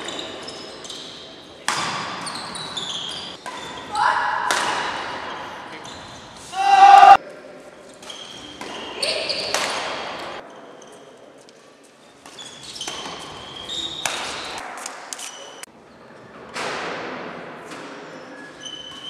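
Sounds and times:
shoes squeaking on wooden court: 0:00.0 - 0:06.5, 0:07.9 - 0:15.7, 0:18.0 - 0:19.0
racket hitting shuttlecock: 0:01.6 - 0:02.2, 0:03.4 - 0:05.2, 0:08.0 - 0:10.4, 0:14.0 - 0:15.3.

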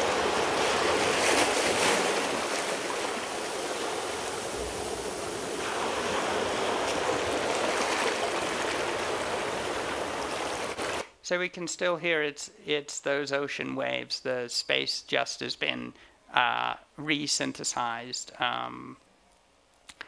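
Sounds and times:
ocean waves over loudspeakers: 0:00.0 - 0:12.0.

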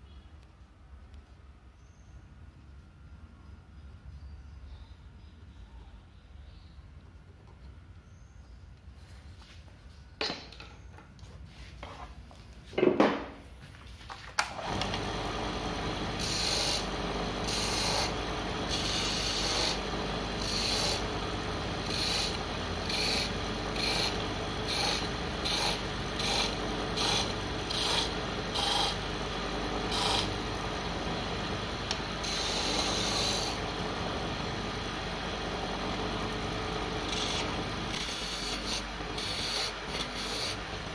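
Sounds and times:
wood lathe humming: 0:14.5 - 0:40.9
tool scraping spinning wood: 0:14.6 - 0:40.9.

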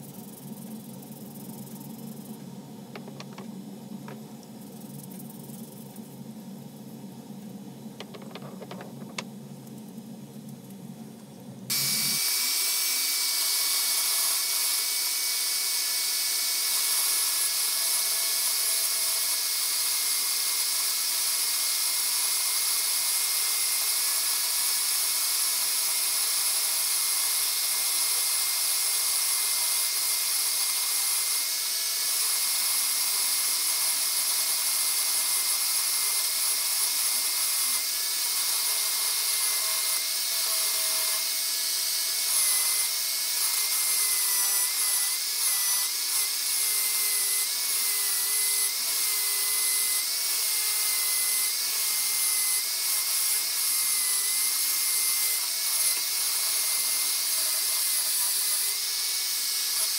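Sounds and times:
metal lathe whine: 0:11.7 - 0:51.6.

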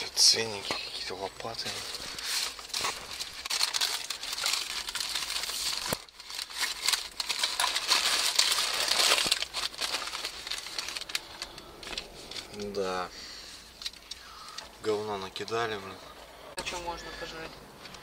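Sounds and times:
paper wrapper crinkling: 0:01.4 - 0:14.7.

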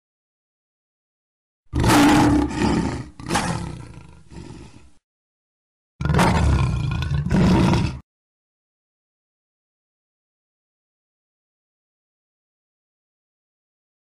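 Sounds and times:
lion roaring: 0:01.7 - 0:05.0, 0:06.0 - 0:08.0.

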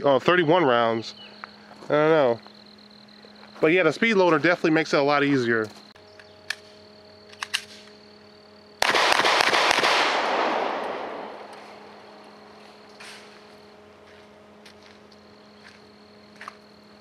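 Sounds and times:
pistol shots: 0:08.8 - 0:11.9.

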